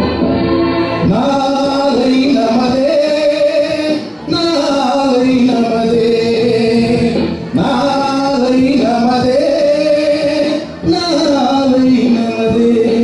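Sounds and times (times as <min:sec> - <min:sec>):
man singing through a microphone: 0:01.0 - 0:13.0.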